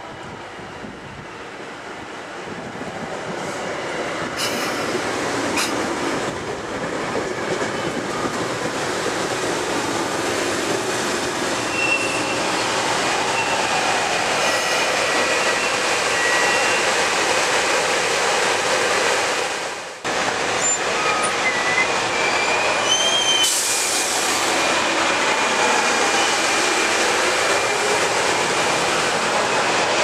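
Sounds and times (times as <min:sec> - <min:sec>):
train wheels rolling on rails: 0:00.3 - 0:30.0
high wheel squeal: 0:11.7 - 0:12.6, 0:13.2 - 0:13.7, 0:14.4 - 0:16.9, 0:20.6 - 0:24.1.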